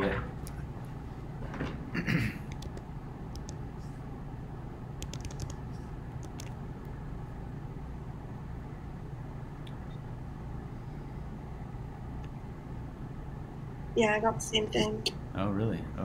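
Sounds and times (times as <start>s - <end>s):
low room hum: 0.0s - 16.0s
calculator keys clicking: 5.0s - 5.6s, 6.2s - 6.6s.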